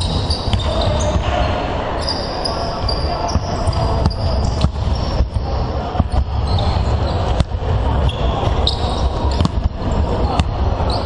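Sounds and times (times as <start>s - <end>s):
shoes squeaking on floor: 0.0s - 1.4s, 2.0s - 5.4s, 6.0s - 7.4s, 8.0s - 11.0s
basketballs bouncing on wooden floor: 2.8s - 11.0s.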